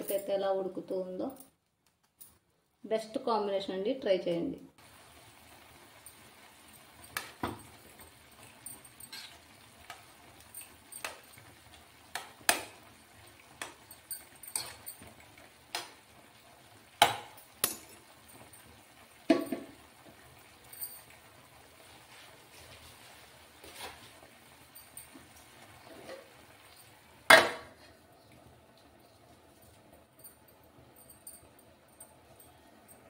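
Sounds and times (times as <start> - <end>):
water boiling: 4.8 - 33.0.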